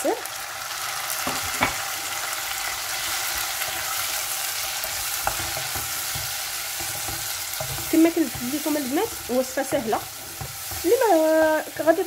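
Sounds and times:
vegetables sizzling in oil: 0:00.0 - 0:12.0.

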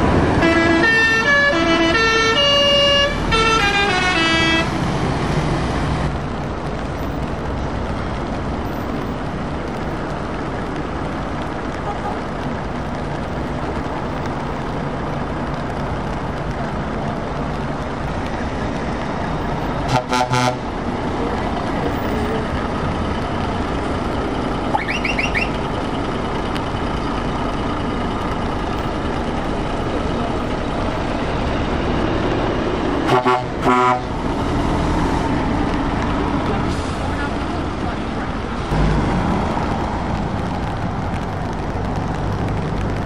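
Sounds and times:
lorry diesel engines running: 0:00.0 - 0:43.0
truck horn blasts: 0:00.4 - 0:04.8, 0:19.9 - 0:20.6, 0:33.0 - 0:34.1.

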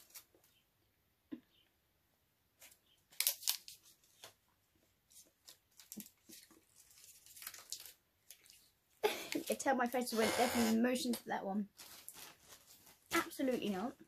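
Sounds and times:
wrapper crackling: 0:03.1 - 0:04.3, 0:05.1 - 0:08.8, 0:11.7 - 0:14.0.

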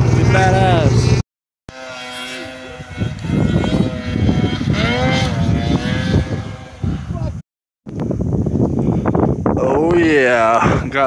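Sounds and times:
snowmobile engine revving: 0:00.0 - 0:07.4.

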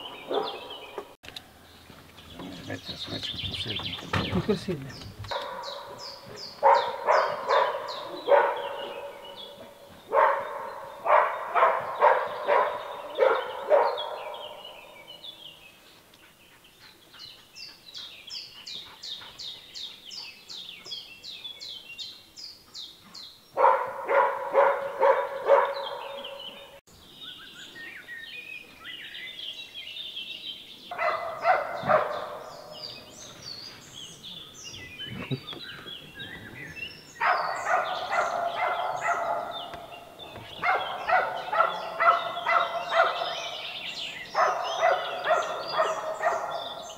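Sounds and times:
hound barking rapidly: 0:00.0 - 0:00.8, 0:05.3 - 0:14.8, 0:23.6 - 0:26.8, 0:30.9 - 0:32.9, 0:37.2 - 0:46.9
birds chirping: 0:00.0 - 0:46.9.

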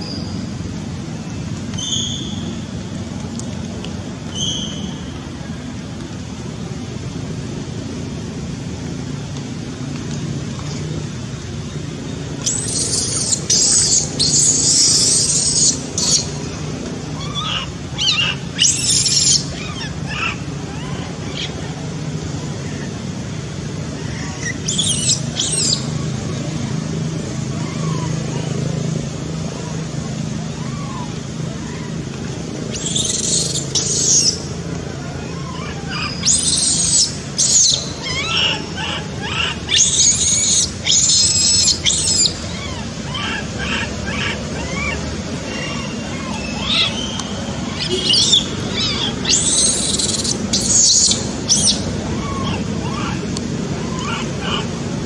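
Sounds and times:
baby monkey screaming: 0:12.4 - 0:16.4, 0:17.1 - 0:21.7, 0:23.9 - 0:26.1, 0:27.5 - 0:28.8, 0:30.5 - 0:54.8.

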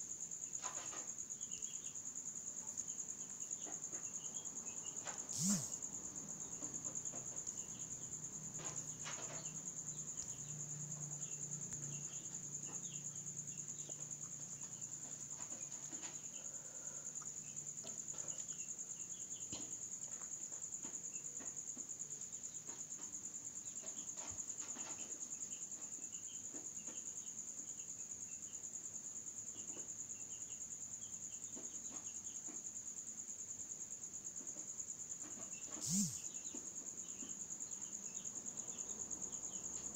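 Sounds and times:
crickets trilling: 0:00.0 - 0:39.9
faint low chirps: 0:35.8 - 0:36.2.

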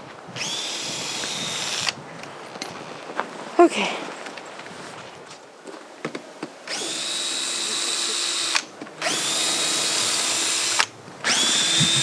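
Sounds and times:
cordless drill whining: 0:00.4 - 0:02.0, 0:06.7 - 0:12.0
drill click: 0:06.7 - 0:12.0.

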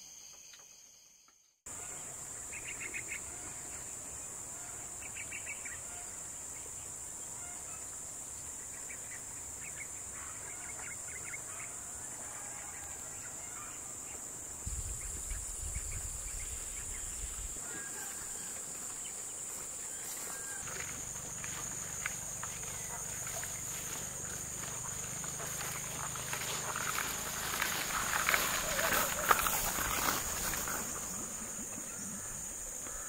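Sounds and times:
insect chirping calls: 0:00.0 - 0:33.0
high-pitched insect drone: 0:14.6 - 0:33.0.

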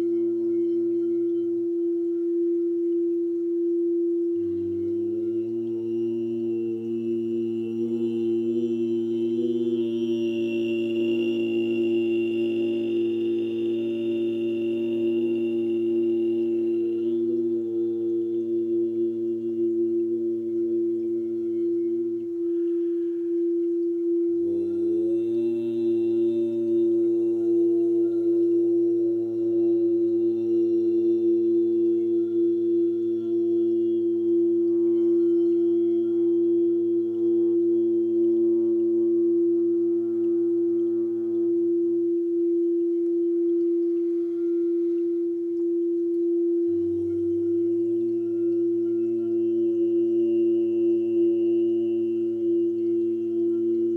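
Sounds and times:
layered sung drone: 0:00.0 - 0:53.9.

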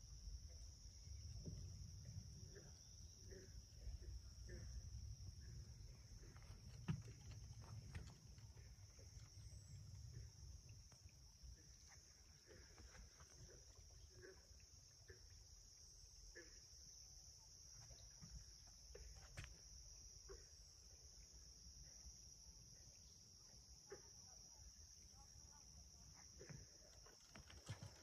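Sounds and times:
insect chorus: 0:00.0 - 0:28.0
soft clicks and crunches: 0:06.2 - 0:10.1.

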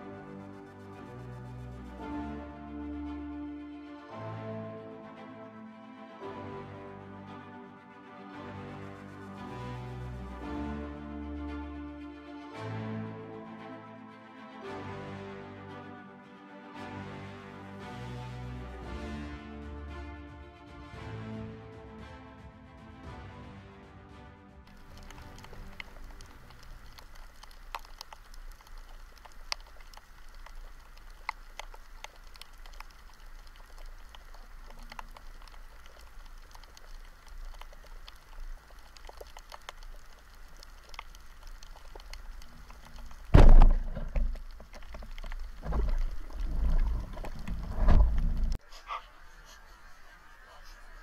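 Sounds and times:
faint underwater hiss: 0:24.7 - 0:51.0
rushing and knocking noise: 0:43.0 - 0:48.6.

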